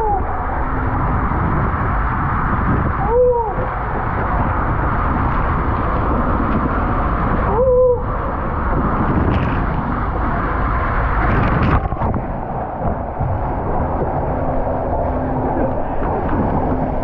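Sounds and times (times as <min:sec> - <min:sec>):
rushing wind and water: 0:00.0 - 0:17.0.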